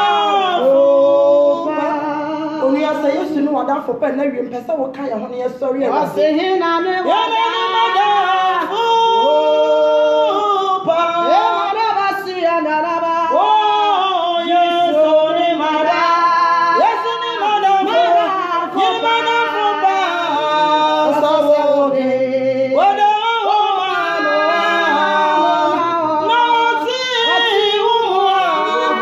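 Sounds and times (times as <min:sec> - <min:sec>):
women singing a worship song: 0:00.0 - 0:29.0.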